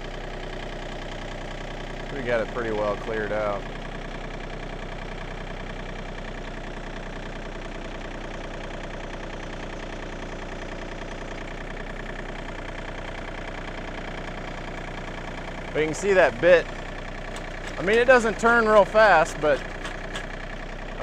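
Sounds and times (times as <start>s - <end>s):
tractor diesel engine running: 0.0s - 21.0s
auger boring into loose fill: 17.2s - 20.4s.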